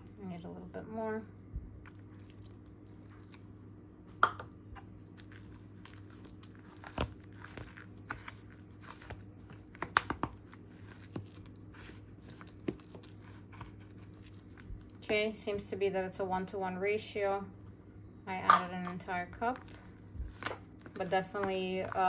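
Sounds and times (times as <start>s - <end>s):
spoon stirring thick batter: 4.7s - 15.3s, 18.7s - 22.0s.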